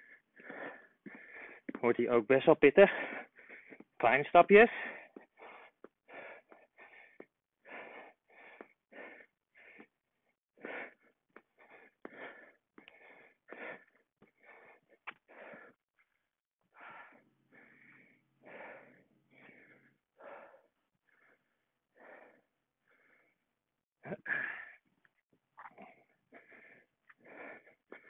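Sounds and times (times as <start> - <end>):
man panting hard: 0.0 - 1.8, 2.8 - 4.0, 4.6 - 15.8, 16.7 - 23.4, 24.1 - 24.8, 25.9 - 28.0.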